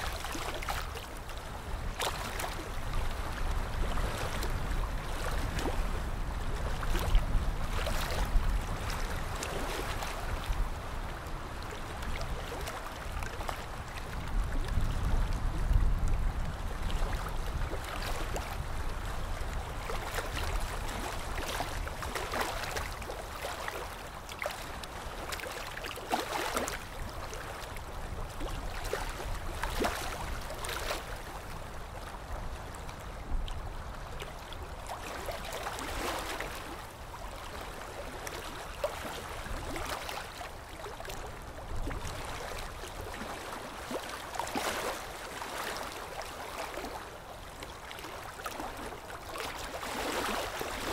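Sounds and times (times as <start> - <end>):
water sloshing and splashing: 0.0 - 5.9, 19.5 - 32.4, 34.1 - 50.9.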